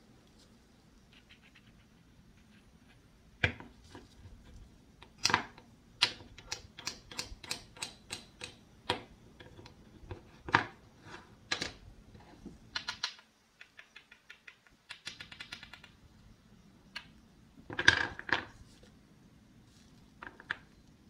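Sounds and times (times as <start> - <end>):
wooden toys tapping on board: 12.7 - 15.9.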